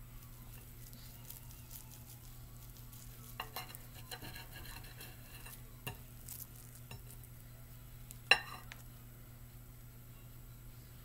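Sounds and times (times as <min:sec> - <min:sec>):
steady low hum: 0:00.0 - 0:11.0
knife scraping a plate: 0:03.2 - 0:07.2.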